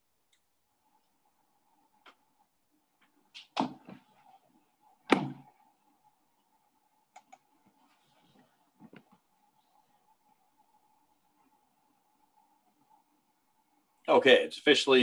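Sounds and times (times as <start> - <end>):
faint steady hum: 0.0 - 15.0
thump: 5.1 - 5.4.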